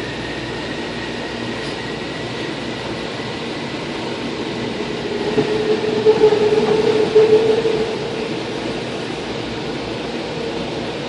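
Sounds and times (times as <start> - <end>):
train rolling rumble: 0.0 - 11.0
faint high whine: 2.8 - 9.2
low hum: 3.6 - 8.9.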